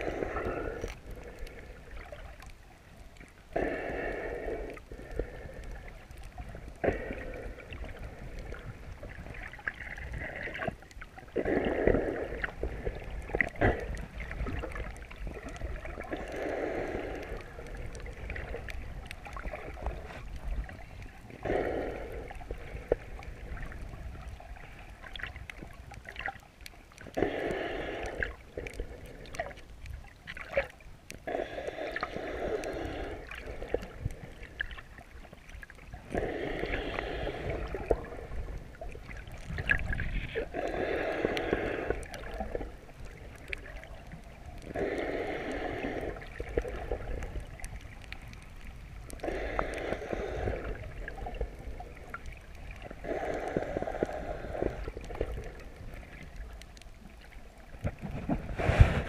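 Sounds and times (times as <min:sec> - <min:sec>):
muffled underwater breathing: 0:00.0 - 0:26.3, 0:26.9 - 0:59.0
faint clicks: 0:00.0 - 0:58.5
low water rumble: 0:00.0 - 0:59.0.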